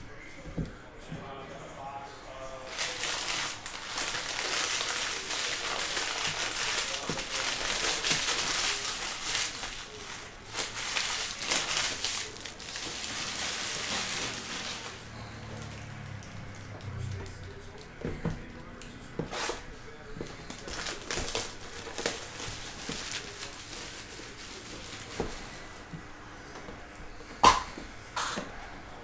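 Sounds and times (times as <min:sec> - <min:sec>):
foil wrapper crinkling: 0:02.6 - 0:17.8, 0:19.2 - 0:25.8.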